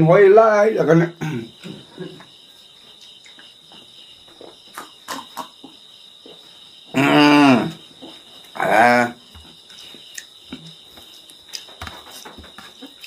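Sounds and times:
mouth clicks: 4.7s - 5.8s, 10.1s - 10.7s.

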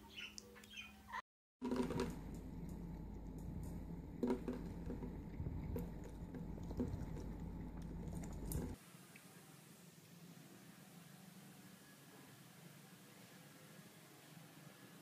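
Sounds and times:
low steady hum: 1.6s - 8.8s.

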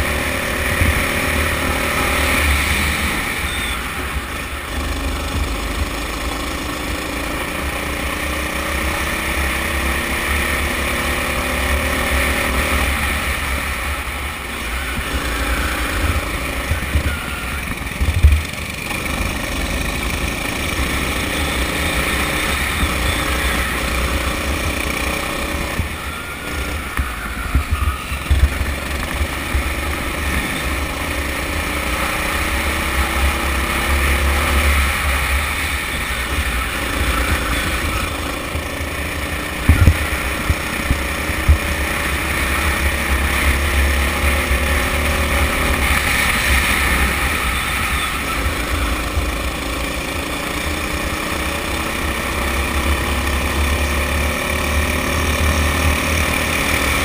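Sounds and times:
kart engine revving: 0.0s - 57.0s
wind rumble on camera: 12.4s - 18.7s, 25.6s - 30.9s, 34.6s - 49.3s.

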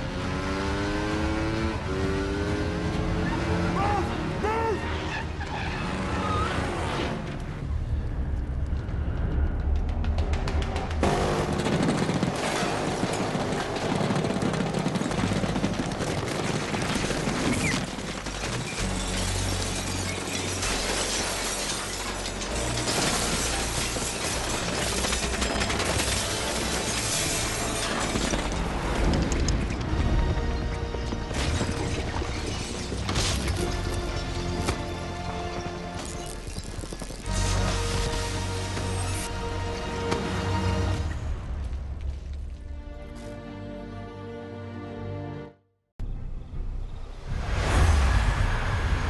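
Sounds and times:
action film score music: 1.2s - 19.9s, 22.2s - 49.0s
window shattering: 18.4s - 28.6s
explosions: 47.2s - 49.0s.

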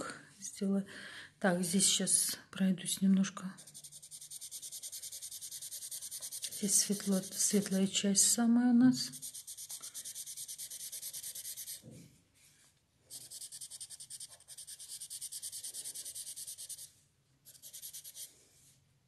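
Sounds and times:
pencil shading on paper: 3.6s - 7.9s, 9.1s - 11.8s, 13.1s - 16.9s, 17.5s - 18.3s.

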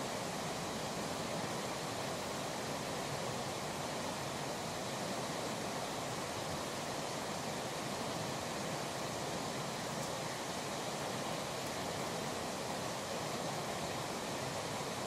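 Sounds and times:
river water rushing: 0.0s - 15.0s.

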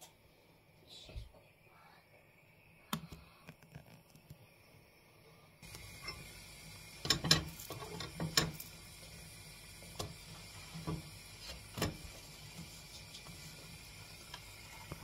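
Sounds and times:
faint steady hiss: 0.0s - 15.0s.

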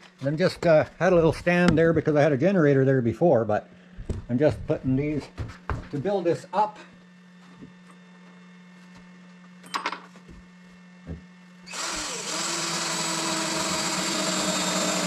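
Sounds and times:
power drill running: 11.6s - 15.0s.

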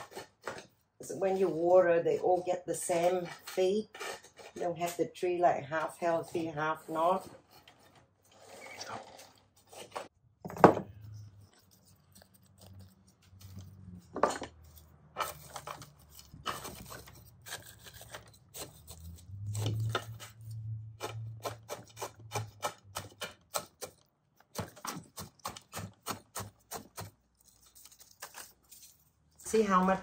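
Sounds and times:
chopstick scraping gritty soil: 11.0s - 30.0s.

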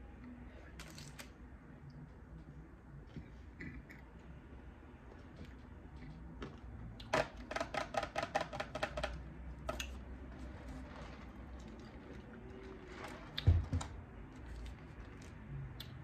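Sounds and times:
close-up eating sounds: 8.7s - 13.6s, 14.2s - 16.0s.

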